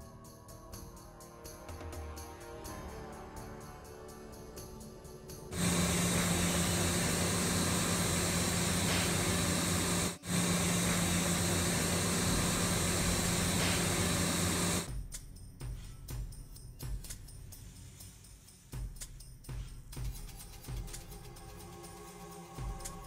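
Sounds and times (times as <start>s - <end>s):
low drone: 5.5s - 14.9s
kitchen ventilation hum and hiss: 5.6s - 14.9s.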